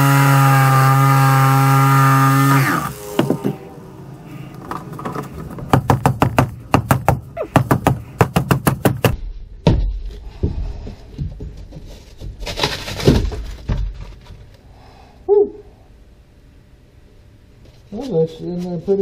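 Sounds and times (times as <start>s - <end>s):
sharp knocks on foam and fiberglass: 5.7s - 10.6s
foam tearing and scraping: 11.9s - 14.2s.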